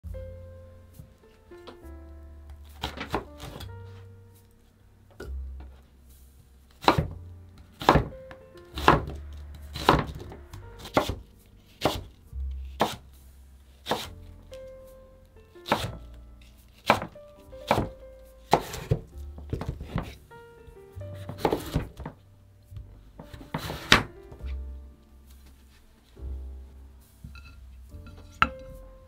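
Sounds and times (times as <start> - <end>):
background music: 0.0 - 29.0
knife chopping on cutting board: 6.8 - 7.2, 7.8 - 8.1, 8.8 - 9.2, 9.8 - 12.1, 12.8 - 13.0, 13.8 - 14.1, 15.6 - 16.0, 16.8 - 17.9, 18.5 - 20.2, 21.2 - 22.0.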